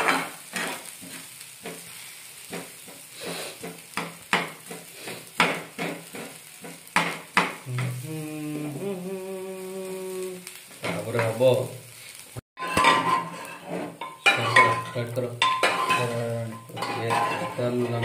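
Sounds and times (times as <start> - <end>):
food frying in a pan: 0.0 - 18.0
person singing: 7.6 - 10.6.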